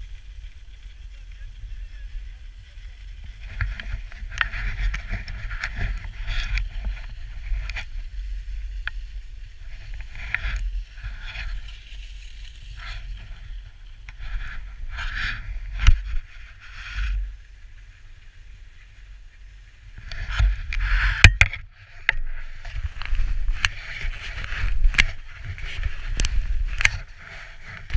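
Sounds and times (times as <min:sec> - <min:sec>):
skis scraping on snow: 0:00.0 - 0:21.2, 0:21.9 - 0:27.9
wind rumble on microphone: 0:00.0 - 0:27.9.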